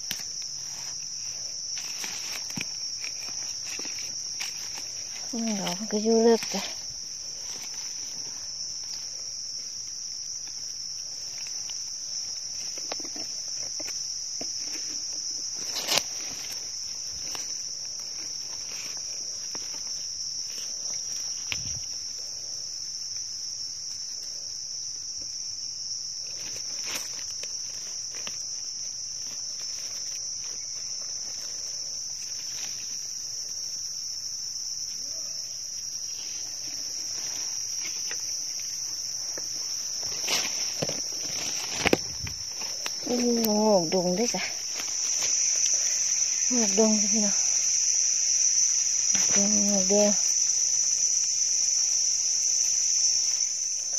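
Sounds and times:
clicks and rustles of digging: 0.0s - 22.1s, 26.2s - 33.2s, 35.8s - 46.5s
high-pitched insect drone: 0.0s - 53.9s.

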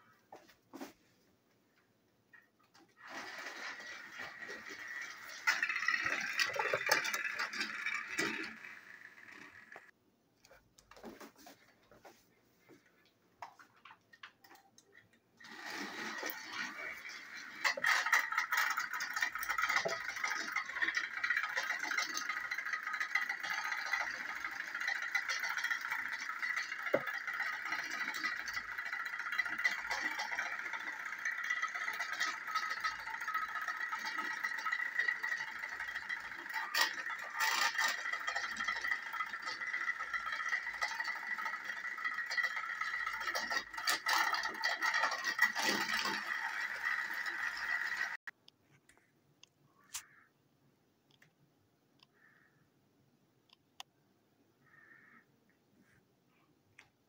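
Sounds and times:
toy train whirring and rattling: 2.7s - 10.0s, 14.4s - 48.4s.

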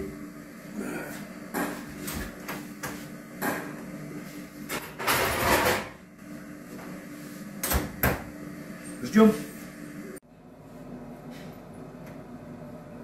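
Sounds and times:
steady hum: 0.0s - 13.0s.

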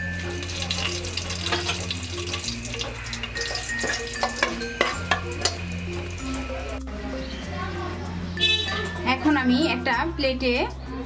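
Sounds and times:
spices sizzling in hot oil: 0.0s - 6.9s
soft background music: 0.0s - 11.0s.

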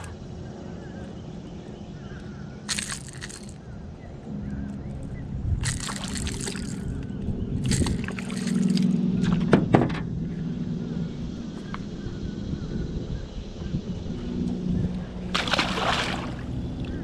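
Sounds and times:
fish splashing at water surface: 2.7s - 3.6s, 5.6s - 6.9s, 15.3s - 16.5s.

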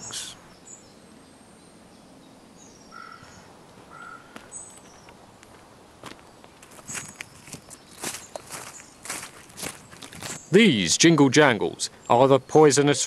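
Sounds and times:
faint bird calls: 2.4s - 5.2s.

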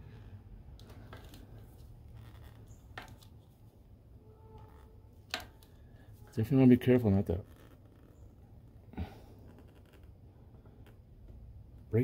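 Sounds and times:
clicks and light scraping: 0.7s - 3.7s, 4.5s - 6.1s.

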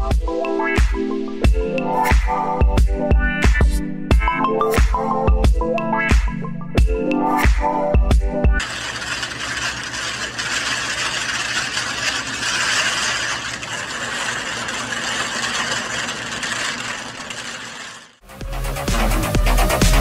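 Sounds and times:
servo motors whirring tiles clattering: 8.6s - 18.2s.

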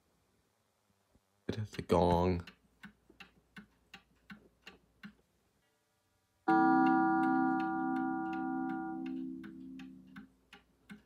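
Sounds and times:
clock ticking: 1.5s - 5.8s, 6.5s - 11.0s
clock gong ringing: 6.5s - 9.8s.

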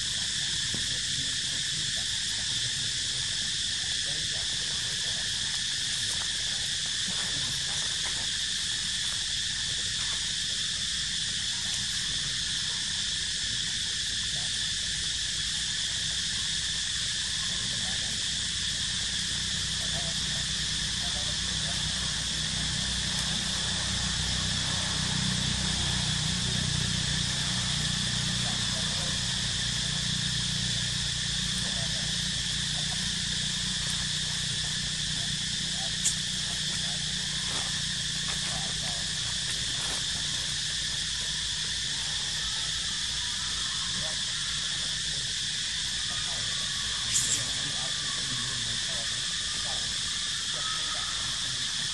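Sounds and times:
high-pitched insect drone: 0.0s - 51.9s
low background rumble: 17.8s - 44.5s.

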